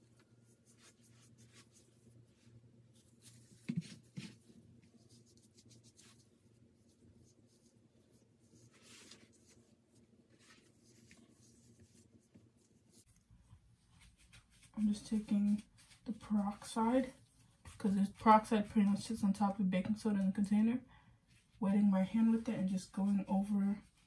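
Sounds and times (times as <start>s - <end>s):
brush scratching through hair: 0.0s - 13.2s, 13.8s - 16.8s.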